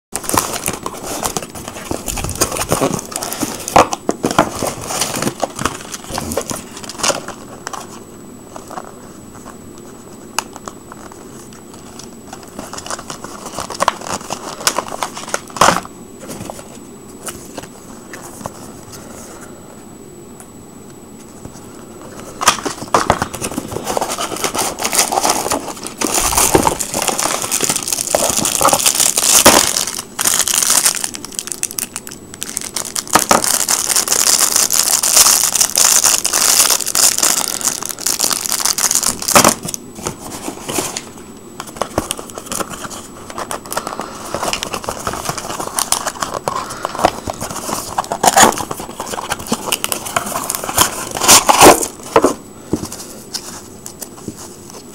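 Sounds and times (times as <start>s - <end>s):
plastic packaging crinkling: 0.1s - 9.5s, 10.4s - 18.6s, 22.1s - 54.9s.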